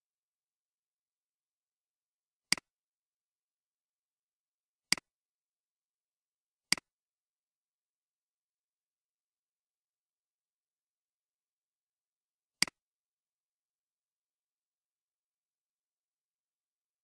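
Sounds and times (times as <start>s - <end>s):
computer mouse clicks: 2.5s - 2.7s, 6.7s - 6.9s.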